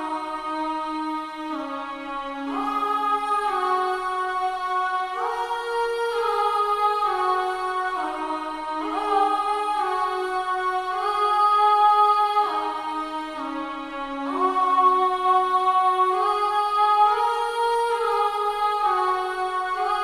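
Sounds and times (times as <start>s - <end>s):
sampled vocal pad chords: 2.5s - 13.5s.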